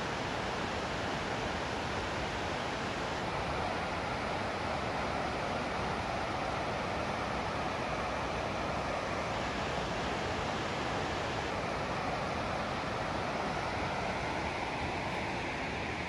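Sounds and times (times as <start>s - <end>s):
water rushing: 0.1s - 16.0s.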